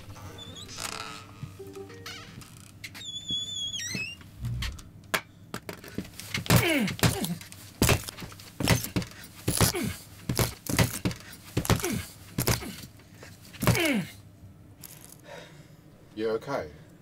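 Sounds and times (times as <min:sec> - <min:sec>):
heavy stamping thuds on floor: 0:07.8 - 0:12.8.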